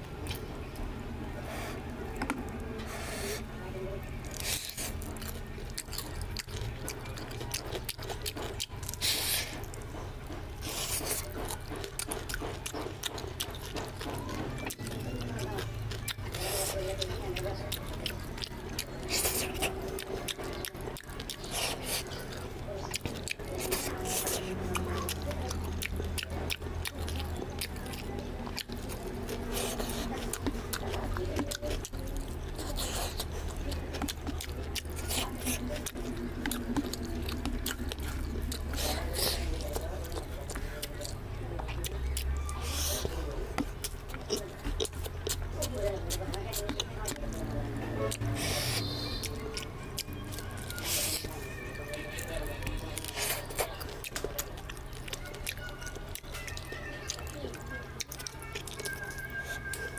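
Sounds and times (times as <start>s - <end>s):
low steady hum: 0.0s - 51.6s
fingers squishing food on plate: 1.5s - 59.9s
lip smacks while chewing: 4.2s - 51.5s, 52.2s - 59.9s.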